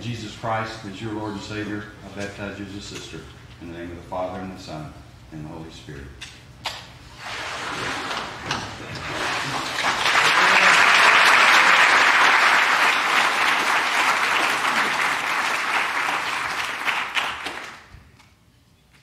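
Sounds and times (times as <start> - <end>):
congregation applauding: 9.0 - 17.9.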